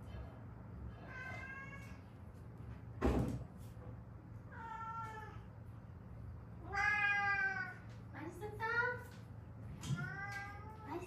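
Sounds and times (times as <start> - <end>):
cat meowing: 1.0 - 2.0, 6.6 - 7.8.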